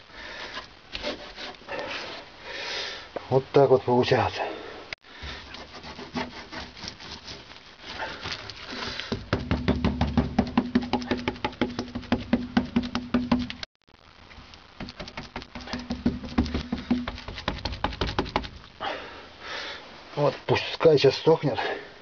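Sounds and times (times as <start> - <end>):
brush rubbing on metal: 5.4 - 9.0, 15.0 - 18.7.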